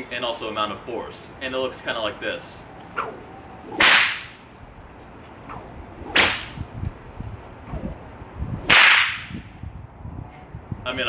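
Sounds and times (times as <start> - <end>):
bullwhip cracks: 2.8 - 4.4, 5.5 - 6.6, 8.6 - 9.4.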